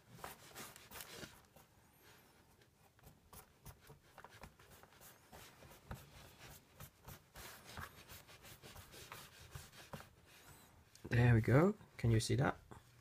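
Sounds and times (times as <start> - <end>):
fingers rustling damp paper: 0.0 - 10.8.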